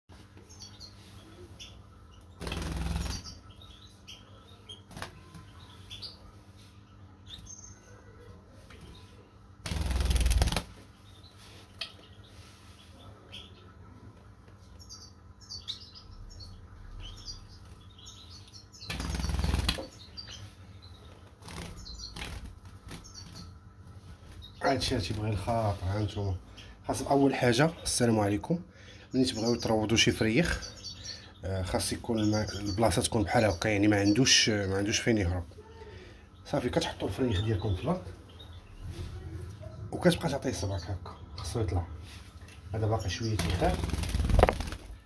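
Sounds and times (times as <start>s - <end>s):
bird wings flapping: 2.4s - 3.4s, 9.6s - 10.8s, 18.9s - 19.9s, 43.4s - 45.0s.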